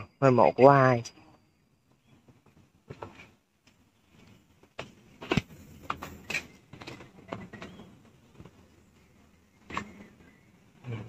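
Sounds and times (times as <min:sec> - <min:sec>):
footsteps walking uphill: 0:01.9 - 0:10.5.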